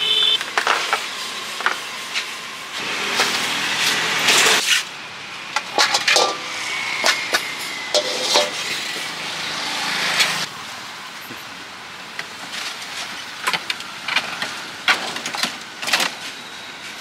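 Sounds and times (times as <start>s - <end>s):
street traffic: 0.0s - 17.0s
plastic baskets clattering on wok: 5.6s - 6.5s, 8.0s - 8.8s.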